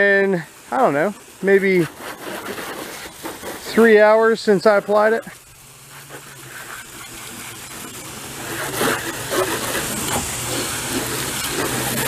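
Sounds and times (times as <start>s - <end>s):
hose spraying water on car: 0.0s - 12.0s.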